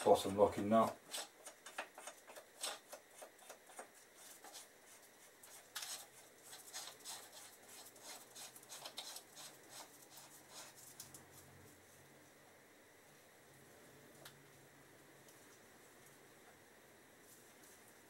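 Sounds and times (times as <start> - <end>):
light rubbing: 0.0 - 11.7.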